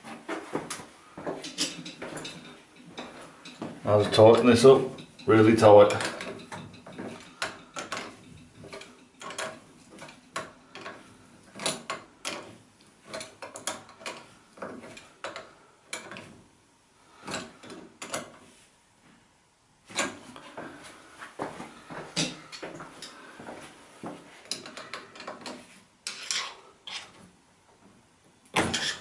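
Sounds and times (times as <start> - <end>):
wrench clicking and knocking metal: 5.9 - 11.0.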